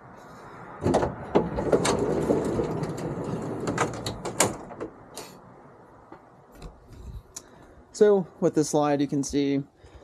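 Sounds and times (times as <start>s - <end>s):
metal frame knocks and clicks: 0.8s - 5.0s
drawer slide rolling on metal runners: 1.0s - 4.9s.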